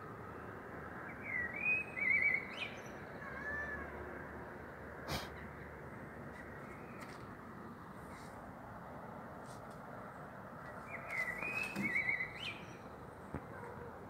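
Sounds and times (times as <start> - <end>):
cat meowing: 3.2 - 3.9.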